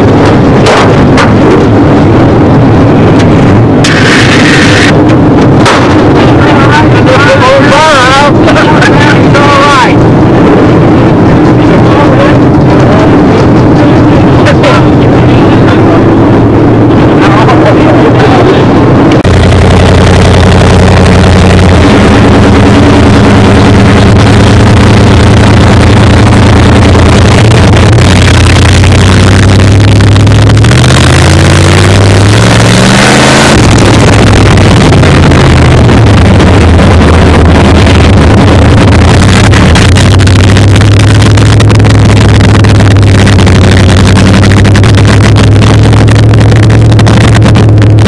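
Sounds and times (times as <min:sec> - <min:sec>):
loud race car engine: 0:00.0 - 0:48.0.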